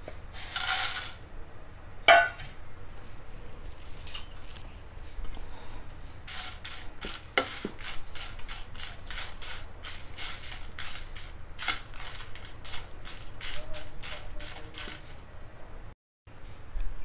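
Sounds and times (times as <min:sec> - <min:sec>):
spoon scraping chillies in a pan: 0:06.2 - 0:15.3.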